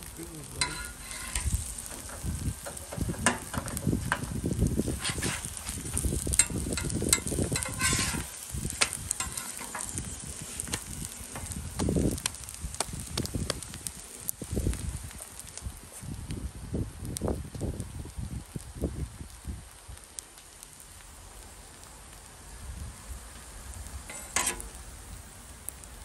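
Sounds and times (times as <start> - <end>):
flatbreads sizzling in oil: 0.0 - 26.0
metal spatula clicking on griddle: 0.6 - 4.3, 6.3 - 10.0, 24.1 - 24.7.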